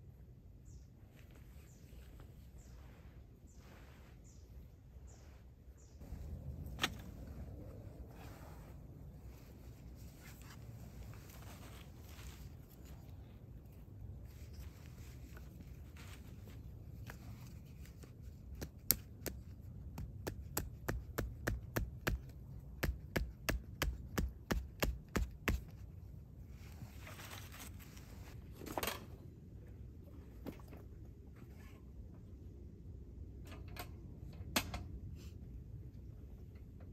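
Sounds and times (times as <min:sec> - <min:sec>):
short rustle or scrape: 0:01.2 - 0:13.4, 0:26.4 - 0:29.0
hatchet knocking tent stake: 0:18.6 - 0:25.6.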